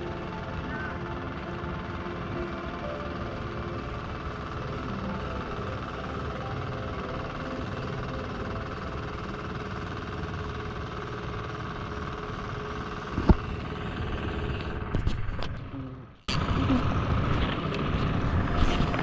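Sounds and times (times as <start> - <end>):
low rumbling background noise: 0.0 - 19.0.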